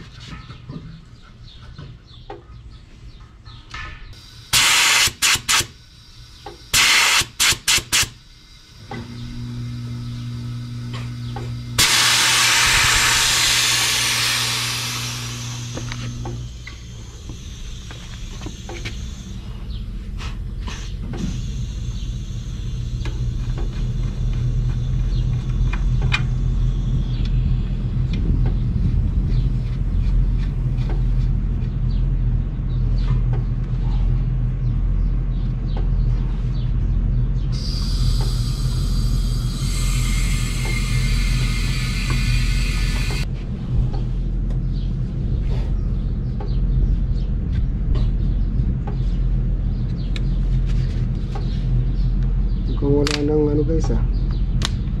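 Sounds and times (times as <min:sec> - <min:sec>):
gas hissing through hoses: 0:04.2 - 0:27.4, 0:37.5 - 0:43.3
low hum: 0:08.1 - 0:52.8
low rumble: 0:21.6 - 0:52.8.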